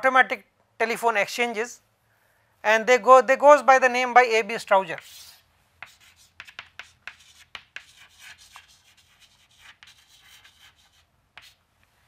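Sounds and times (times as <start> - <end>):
chalk tapping and scratching: 4.9 - 11.9.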